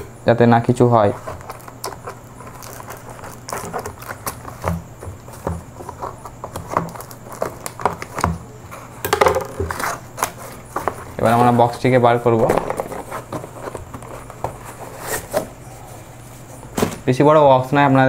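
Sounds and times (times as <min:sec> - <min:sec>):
plastic wrapping rustling: 0:00.6 - 0:17.1
scissors snipping plastic: 0:01.2 - 0:08.3.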